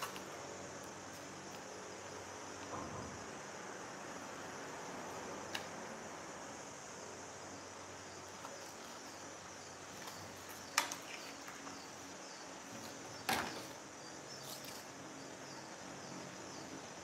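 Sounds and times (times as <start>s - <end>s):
high-pitched background hiss: 0.0s - 17.0s.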